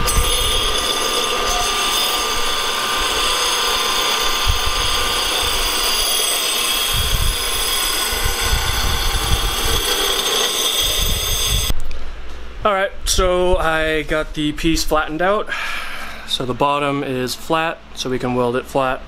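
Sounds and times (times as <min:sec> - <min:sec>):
motor whine: 0:00.0 - 0:11.7
sander grinding metal: 0:00.0 - 0:11.7.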